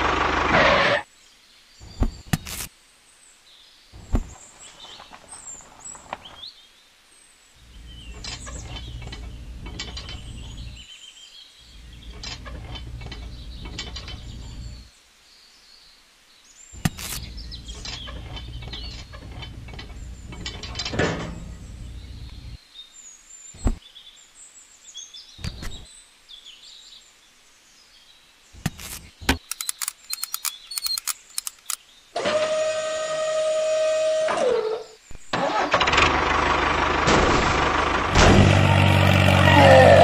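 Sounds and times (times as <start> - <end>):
birds chirping: 0.0 - 32.2
small parts clicking and rattling: 28.7 - 31.8
small electric motor whine: 32.2 - 34.9.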